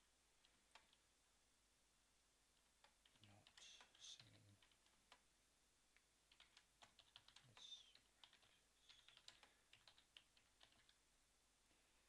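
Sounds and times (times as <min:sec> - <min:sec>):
faint keyboard typing: 0:00.4 - 0:01.1, 0:02.6 - 0:05.3, 0:06.0 - 0:11.0.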